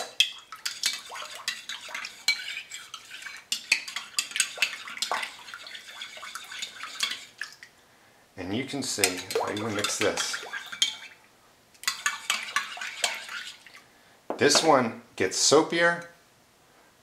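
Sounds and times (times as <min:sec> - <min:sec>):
spoon clinking against bowl: 0:00.0 - 0:07.3, 0:09.0 - 0:11.0
metal spoon stirring in bowl: 0:00.0 - 0:07.6, 0:08.6 - 0:11.2, 0:11.8 - 0:13.8.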